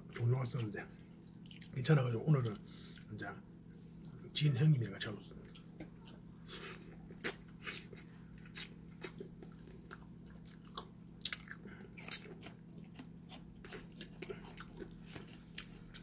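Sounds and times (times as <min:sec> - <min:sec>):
person chewing with mouth smacks: 0:01.3 - 0:01.8, 0:05.4 - 0:16.0.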